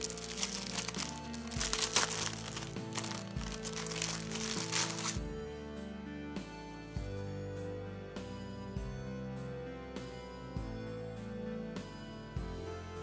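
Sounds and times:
plastic bag crinkling: 0.0 - 5.2
background music: 0.0 - 13.0.

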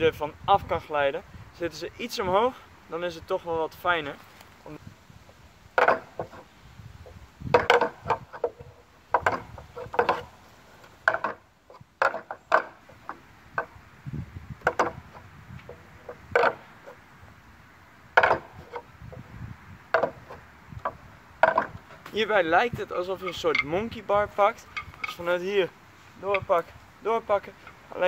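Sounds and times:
wooden pegs clacking: 5.7 - 13.9, 14.6 - 17.0, 18.1 - 19.3, 19.9 - 28.0.

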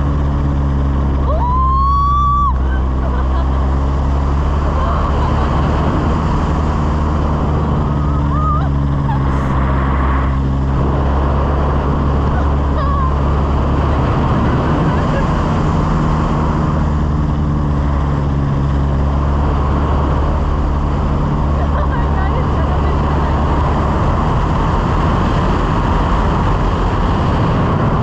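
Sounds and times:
propeller engine running: 0.0 - 28.0
rush of air: 4.2 - 12.4.

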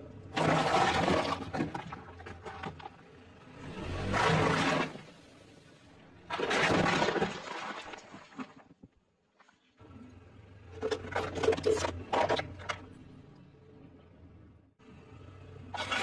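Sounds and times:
car tyre crushing ice cubes: 0.3 - 3.0, 6.2 - 8.6, 10.7 - 12.9.

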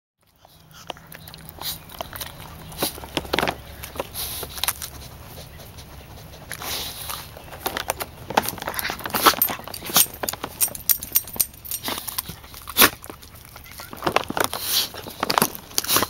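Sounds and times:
dog snuffling: 0.4 - 16.0
dog rustling in dry leaves: 14.3 - 16.0.

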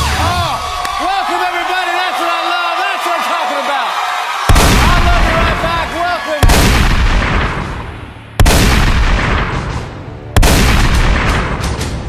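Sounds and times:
loud gunshots: 4.5 - 11.8.

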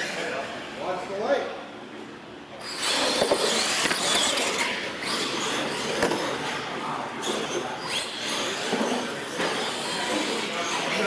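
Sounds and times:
electric motors and gears whining: 2.5 - 11.0.

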